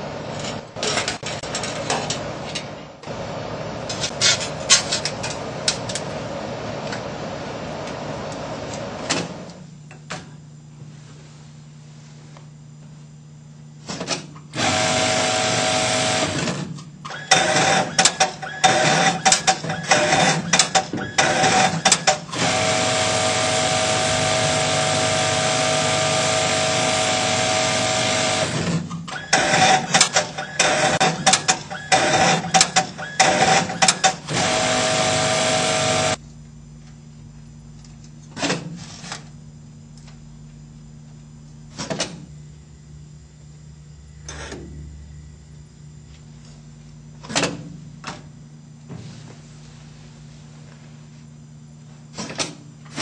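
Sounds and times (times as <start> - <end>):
industrial sewing machine stitching: 14.5 - 36.2.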